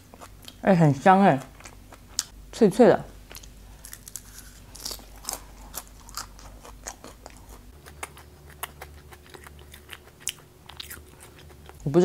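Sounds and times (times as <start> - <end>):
crunchy chewing: 3.3 - 11.9.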